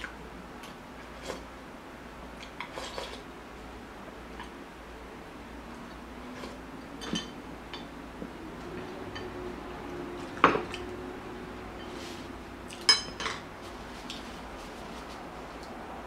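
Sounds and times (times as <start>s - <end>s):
tableware clinking: 7.0s - 7.9s, 12.8s - 13.4s.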